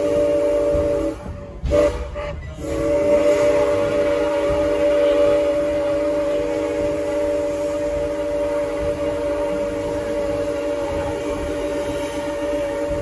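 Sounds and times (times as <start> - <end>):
low rumble of train rolling: 0.0 - 13.0
steam locomotive whistle: 0.0 - 13.0.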